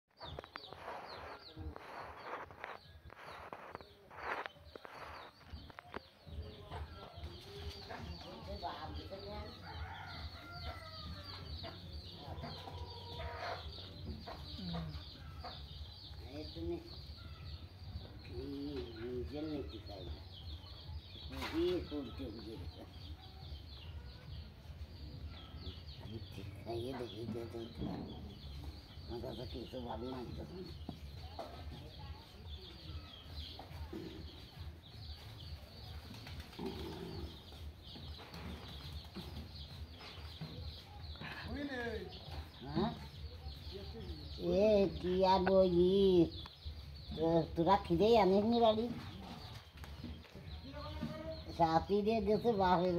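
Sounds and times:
birds chirping: 0.1 - 52.9
low cooing: 36.6 - 37.5.

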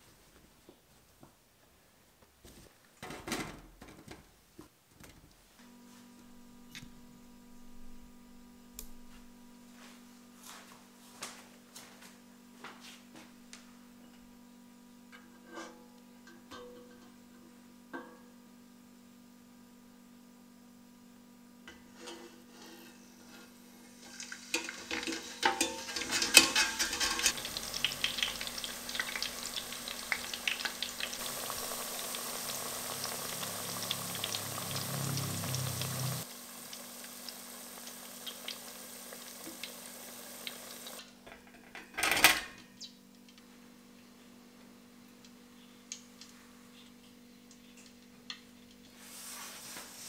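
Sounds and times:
potatoes sizzling in hot oil: 23.0 - 41.0
wire fry basket clinking: 24.0 - 31.2.

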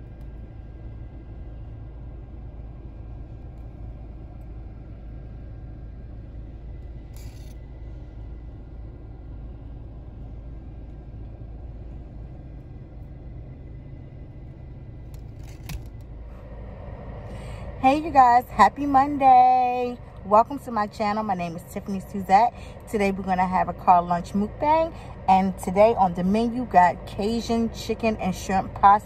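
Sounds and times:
low rumble in car cabin: 0.0 - 29.0.

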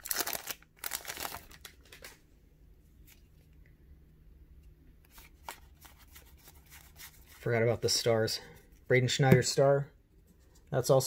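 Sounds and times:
low room hum: 0.0 - 11.0
trading cards flipped by hand: 5.1 - 7.3.

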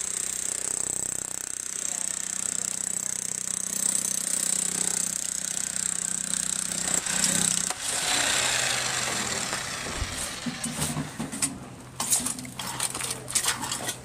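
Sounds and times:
power tool running: 0.0 - 11.1
digging tool scraping rocky soil: 12.0 - 14.0.

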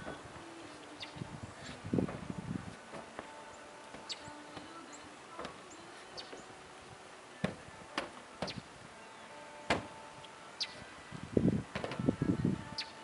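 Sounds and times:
small birds chirping: 0.0 - 13.0
horse hooves knocking on trailer: 7.4 - 8.7, 9.6 - 10.0, 11.7 - 12.2.

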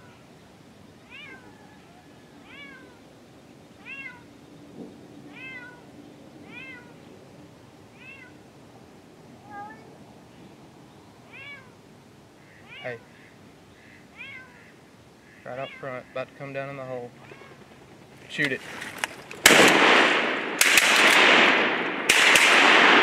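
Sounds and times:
cat meowing: 1.0 - 3.0, 3.8 - 4.3, 5.3 - 7.0, 7.9 - 8.4, 9.4 - 10.0, 11.3 - 11.8, 12.4 - 14.8, 15.4 - 16.2, 17.2 - 17.6.

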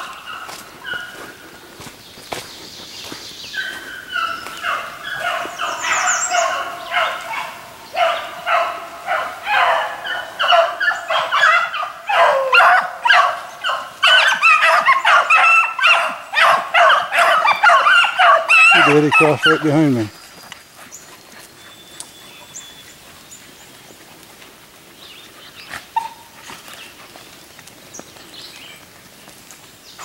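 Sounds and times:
beagles baying: 0.0 - 1.5, 3.0 - 24.1.

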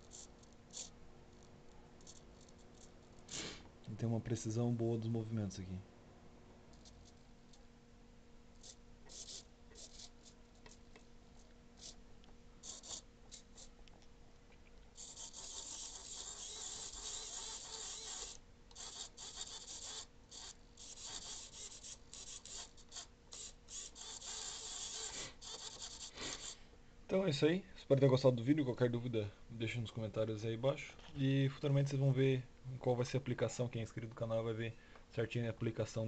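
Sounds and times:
micro servos whirring: 15.0 - 21.8.

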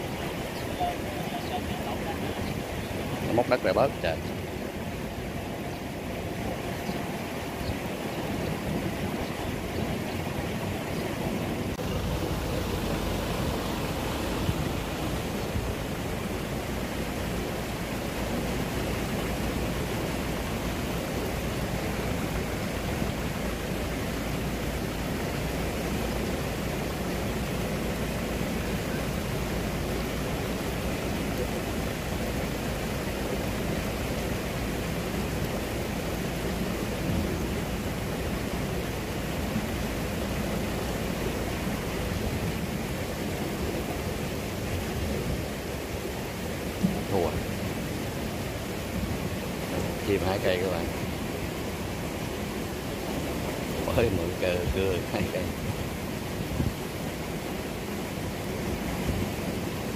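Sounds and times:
wind rushing over microphone: 0.0 - 59.9.

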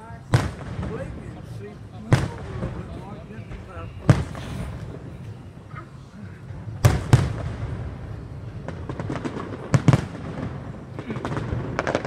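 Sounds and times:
firework booms: 0.0 - 5.3, 6.4 - 12.0
crackling firework pops: 0.3 - 1.3, 2.1 - 5.0, 6.8 - 7.8, 8.6 - 12.0.

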